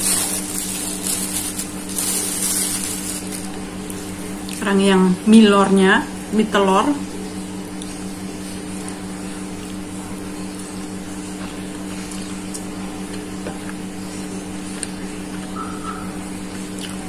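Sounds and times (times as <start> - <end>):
steady mechanical hum: 0.0 - 17.0.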